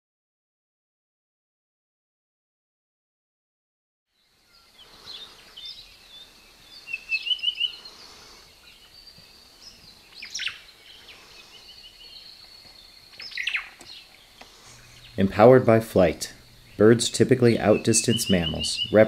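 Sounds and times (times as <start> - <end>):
birds chirping and calling: 4.4 - 19.0
thin steady high tone: 14.6 - 19.0.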